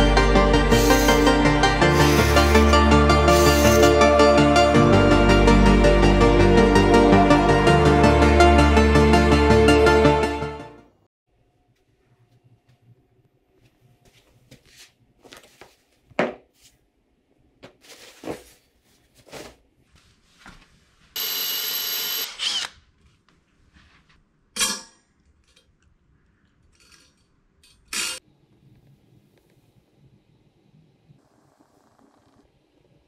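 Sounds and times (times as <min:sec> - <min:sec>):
small electric motor running: 0:00.7 - 0:04.0, 0:21.2 - 0:22.7.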